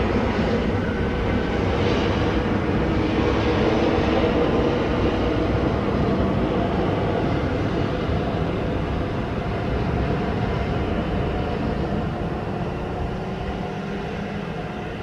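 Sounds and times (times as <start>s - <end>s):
jet engine roar: 0.0s - 15.0s.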